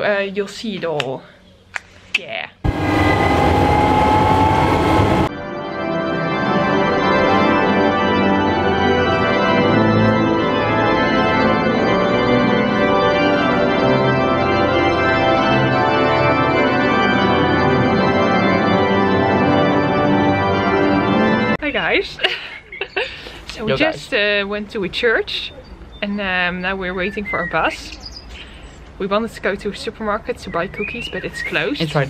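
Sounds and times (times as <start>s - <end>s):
pipe organ playing chords: 2.7s - 21.6s.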